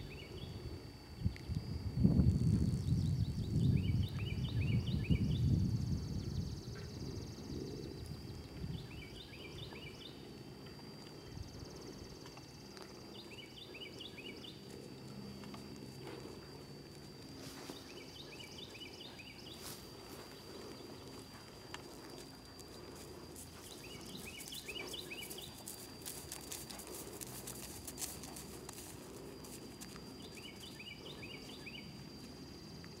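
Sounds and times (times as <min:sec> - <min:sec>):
wind rumble on microphone: 0:00.0 - 0:09.8
horse hoofbeats on grass: 0:21.1 - 0:30.8.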